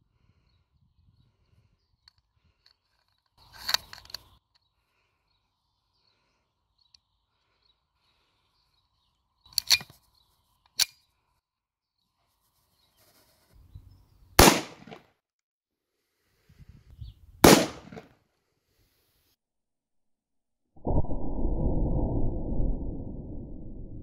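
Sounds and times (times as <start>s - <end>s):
blank pistol shot: 14.4s - 15.0s, 17.4s - 18.1s.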